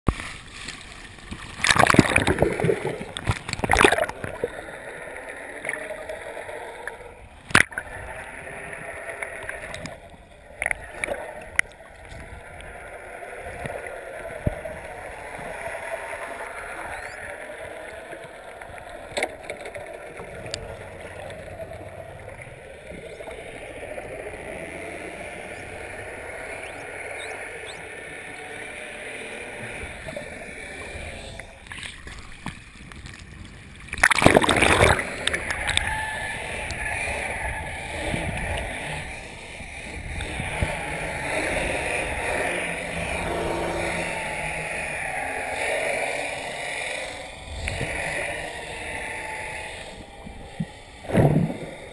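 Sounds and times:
muffled underwater water noise: 0.1 - 51.9
waves sloshing: 0.1 - 51.9
loud splash: 1.6 - 4.1, 33.9 - 35.1.

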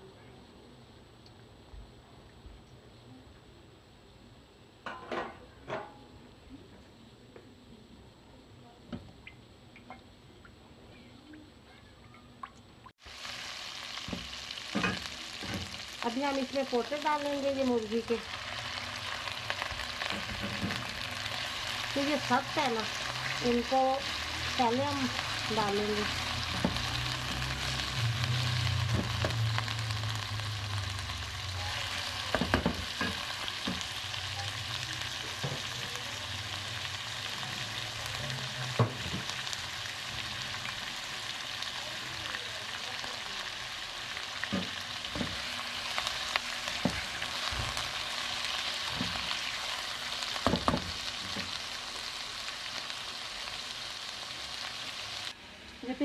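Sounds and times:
food sizzling in hot oil: 13.0 - 56.0.

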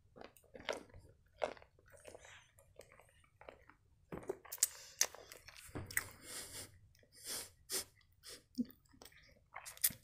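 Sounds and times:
chewing with wet mouth clicks: 0.2 - 6.1, 8.8 - 10.0.

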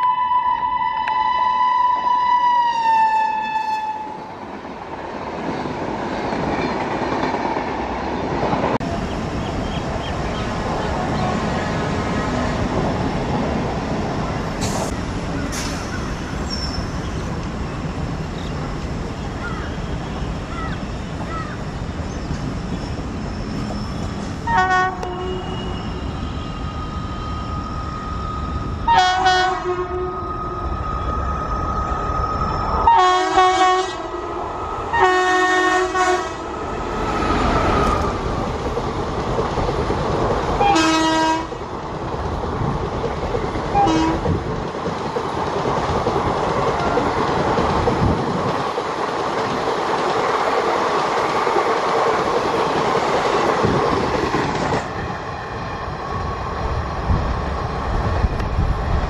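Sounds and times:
locomotive horn: 0.0 - 4.3, 24.4 - 26.0, 28.8 - 30.6, 32.8 - 34.2, 34.9 - 36.5, 40.6 - 41.6, 43.7 - 44.3
train rumble: 2.9 - 59.0.

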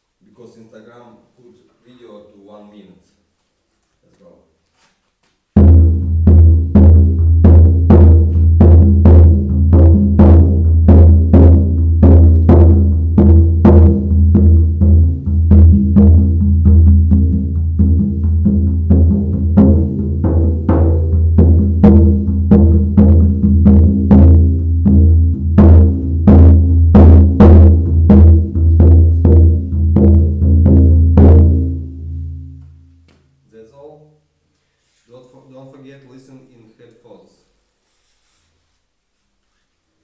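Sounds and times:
frame drum beaten: 5.6 - 32.8.

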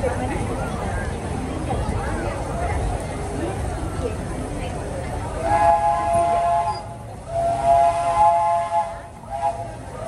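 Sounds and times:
steam locomotive whistle: 5.4 - 10.0.

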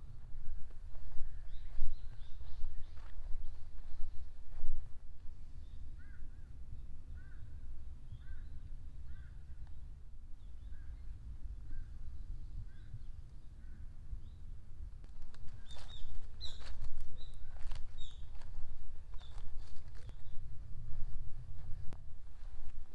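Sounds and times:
small birds chirping: 1.0 - 4.4, 5.6 - 14.5, 15.4 - 20.5.

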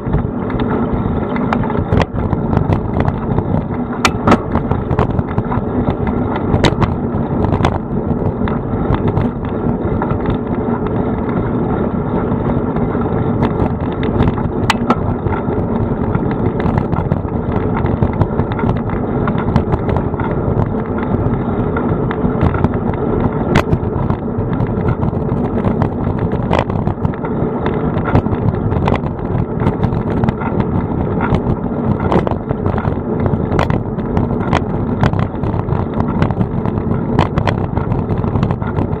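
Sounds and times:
bicycle tyres on road: 0.0 - 39.0
bike rattling over bumps: 0.0 - 39.0
wind on microphone: 0.0 - 39.0.

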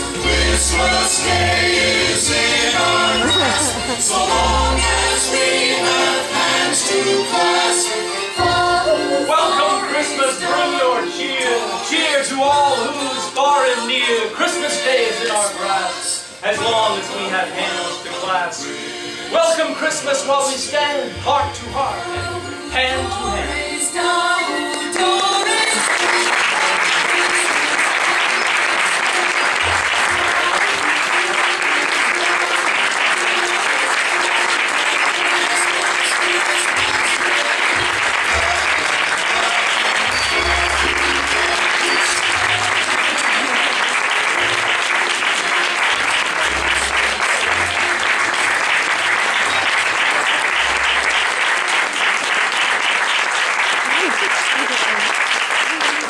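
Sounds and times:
audience applauding: 0.0 - 7.8, 24.7 - 56.0.

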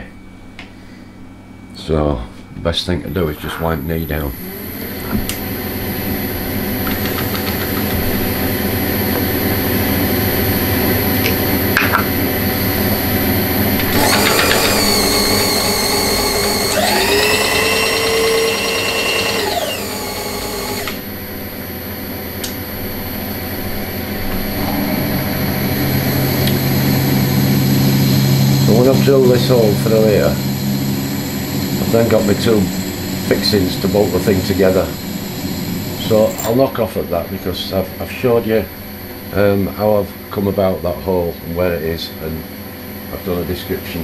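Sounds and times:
milling machine hum: 4.3 - 22.3, 22.9 - 37.4
high whine: 7.6 - 38.8
drill cutting metal: 13.6 - 21.1, 28.0 - 36.4.

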